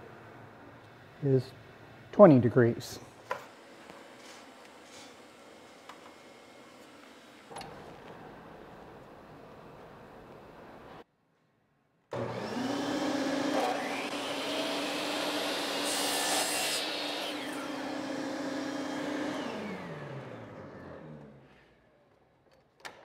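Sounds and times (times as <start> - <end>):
miter saw running: 12.2 - 19.9
saw blade cutting wood: 12.3 - 17.9.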